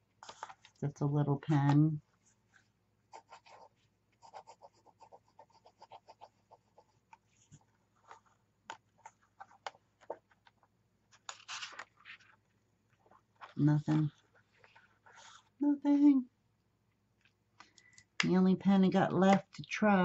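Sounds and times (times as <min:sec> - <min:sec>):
notebook page turning: 0:00.2 - 0:00.8, 0:05.5 - 0:15.5.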